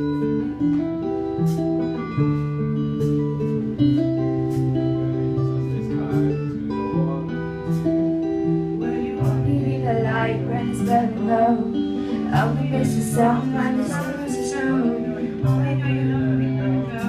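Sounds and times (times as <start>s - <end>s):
live band playing: 0.0s - 17.0s
woman singing: 8.7s - 17.0s.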